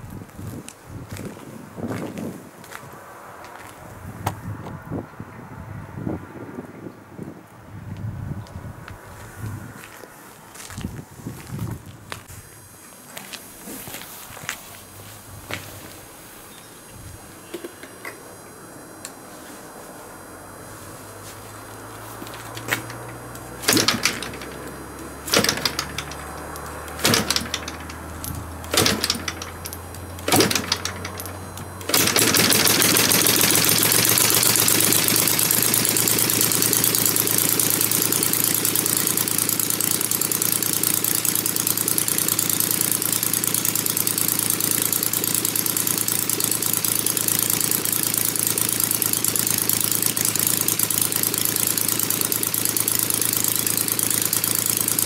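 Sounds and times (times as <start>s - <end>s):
engine running steadily: 7.9s - 55.0s
model plane engine cranking and firing: 21.6s - 55.0s.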